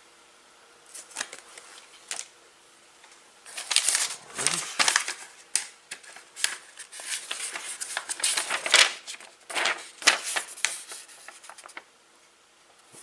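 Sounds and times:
paper rustling and crinkling: 0.9 - 2.3, 3.4 - 11.9.

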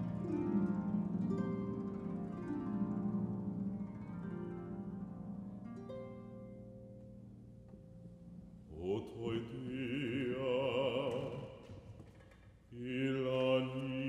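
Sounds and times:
man singing classical held note: 8.6 - 12.1, 12.7 - 14.0.

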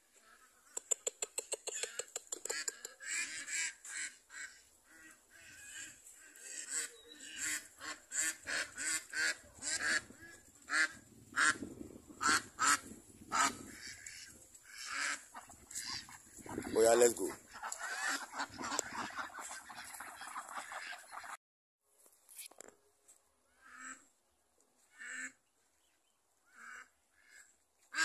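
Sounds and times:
ducks quacking: 1.7 - 21.4, 23.6 - 24.1, 24.9 - 25.4, 26.5 - 28.0.

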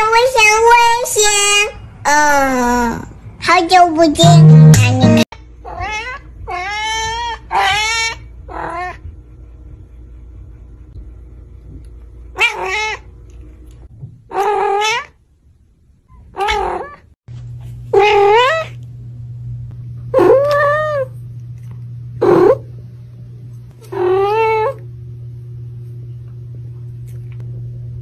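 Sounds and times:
cat meowing: 5.6 - 9.0, 12.4 - 13.0, 14.3 - 15.1, 17.9 - 18.8, 23.8 - 24.8.

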